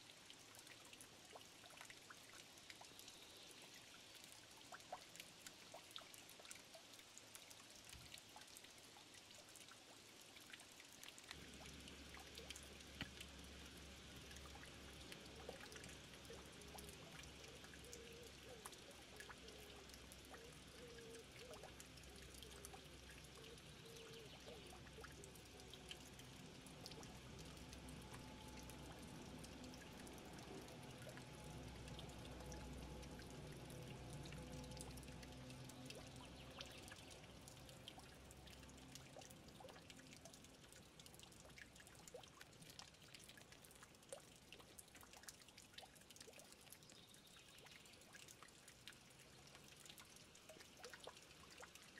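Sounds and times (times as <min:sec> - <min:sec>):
fountain water trickling: 0:00.0 - 0:51.9
water dripping: 0:00.0 - 0:51.9
low hum: 0:11.3 - 0:38.5.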